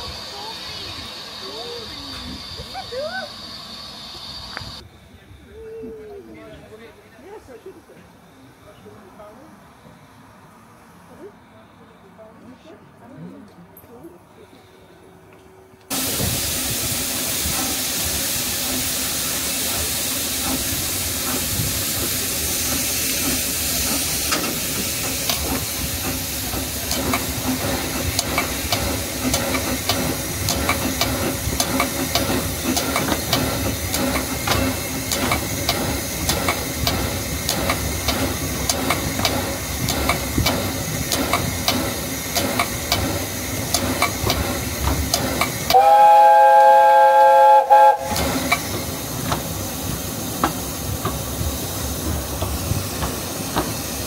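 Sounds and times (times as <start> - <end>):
regular clicks of train wheels: 0.0 - 4.8, 13.8 - 54.0
steam hissing: 0.0 - 4.8, 15.9 - 54.0
steam whistle blowing: 45.7 - 48.4.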